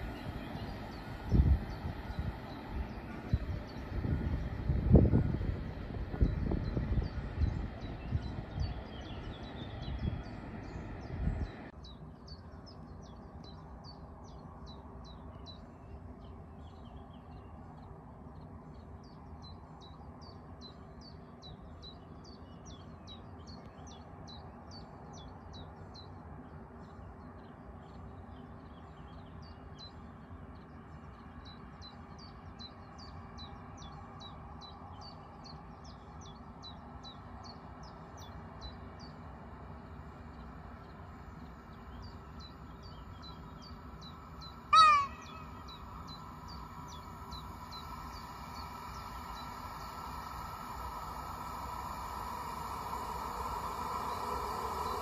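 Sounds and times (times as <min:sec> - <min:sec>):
train humming: 0:00.0 - 0:11.8, 0:39.7 - 0:55.0
outdoor background noise: 0:00.0 - 0:55.0
small birds chirping: 0:00.0 - 0:55.0.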